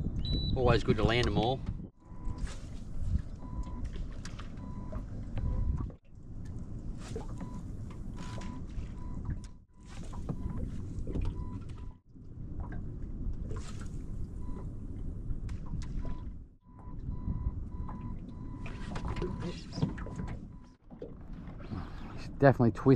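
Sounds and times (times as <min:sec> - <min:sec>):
wind on microphone: 0:00.0 - 0:04.0
water moving around boat: 0:00.2 - 0:22.9.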